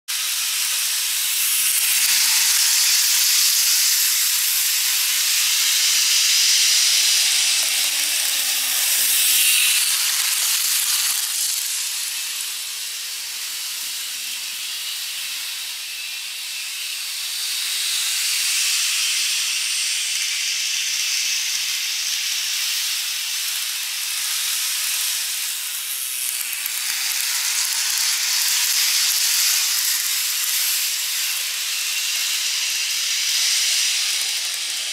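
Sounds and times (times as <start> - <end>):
model train whirring on track: 0.1 - 34.9.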